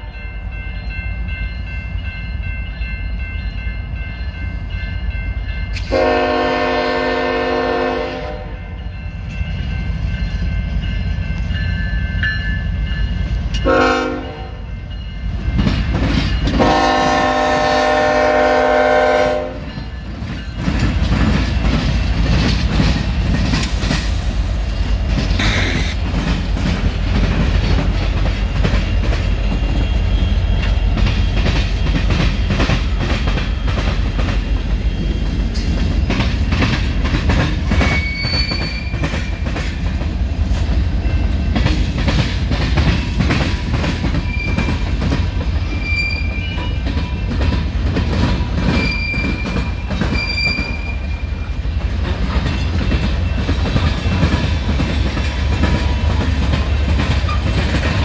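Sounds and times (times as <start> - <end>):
train horn blasts: 5.8 - 8.8, 13.6 - 14.7, 16.5 - 19.8
train wheels clacking: 8.7 - 58.0.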